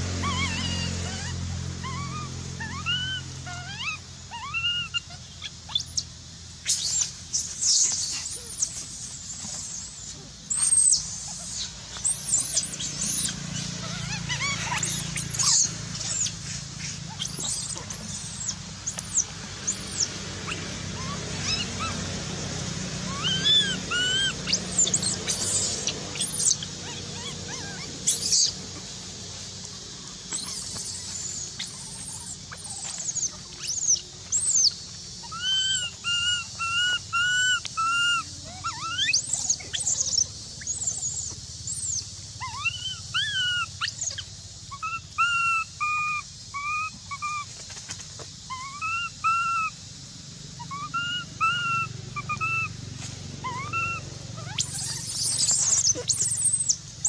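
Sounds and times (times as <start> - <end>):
baby monkey whimpering calls: 0.0 - 22.1, 23.0 - 29.1, 30.0 - 47.5, 48.5 - 49.8, 50.6 - 52.8, 53.4 - 57.0
shrill squeaks: 30.3 - 39.8, 53.5 - 56.8.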